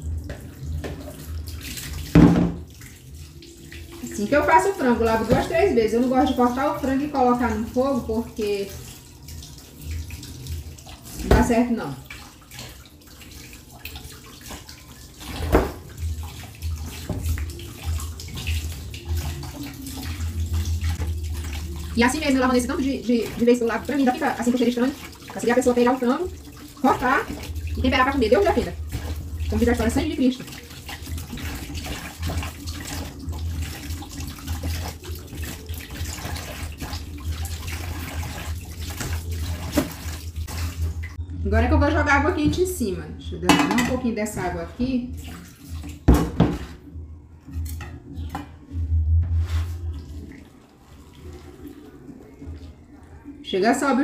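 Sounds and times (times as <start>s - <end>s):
water splashing: 0.0s - 41.2s, 43.5s - 46.9s, 49.4s - 54.0s
tap running into metal sink: 2.1s - 2.7s.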